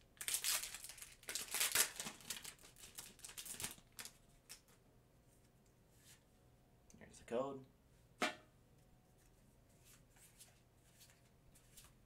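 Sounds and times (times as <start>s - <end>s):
foil wrapper crinkling: 0.2s - 4.7s.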